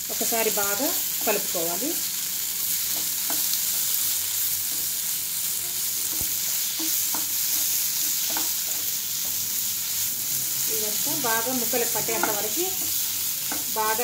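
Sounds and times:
meat sizzling in oil: 0.0 - 14.0.

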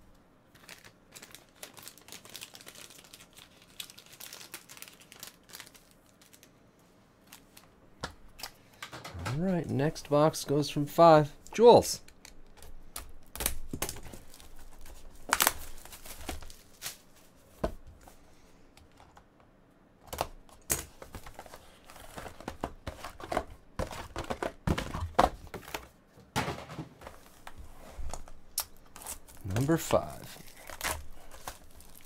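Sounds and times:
plastic wrap crinkling: 0.5 - 6.5, 12.4 - 17.4, 28.2 - 32.0.

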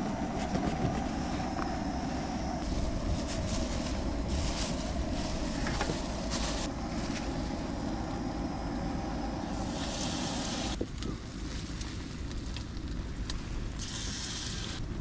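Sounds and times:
wind buffeting microphone: 0.0 - 11.0.

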